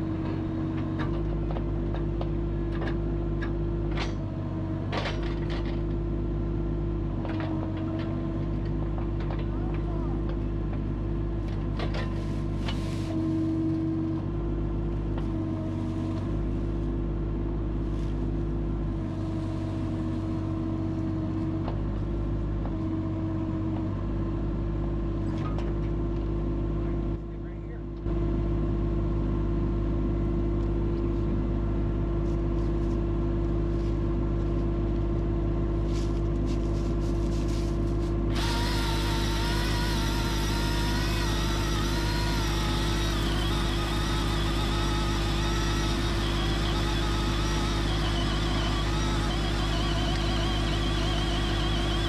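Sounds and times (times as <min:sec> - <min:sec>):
diesel engine idling: 0:38.2 - 0:52.0
chainsaw sawing through log: 0:38.3 - 0:52.0.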